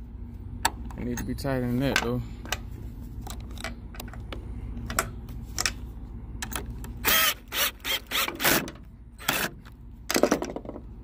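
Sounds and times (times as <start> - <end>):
low steady hum: 0.0 - 11.0
cordless drill driving screw: 7.0 - 9.5.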